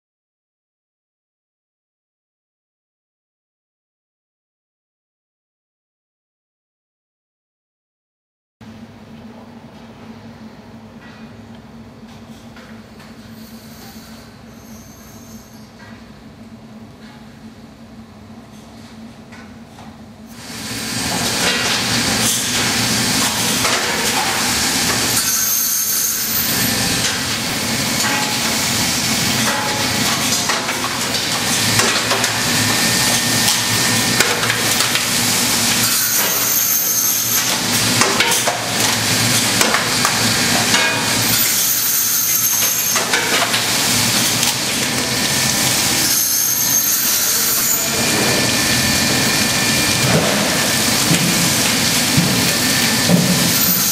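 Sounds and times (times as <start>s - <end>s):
machine hissing: 13.3s - 15.8s, 20.3s - 53.9s
machine knocks and clatter: 49.9s - 53.9s.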